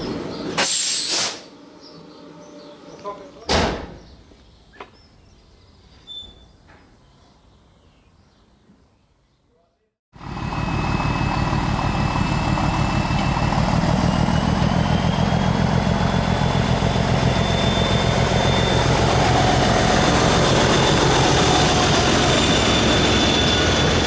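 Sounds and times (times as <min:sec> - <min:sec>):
diesel locomotive engine running: 0:00.0 - 0:03.4, 0:10.2 - 0:24.0
high whine: 0:10.2 - 0:24.0.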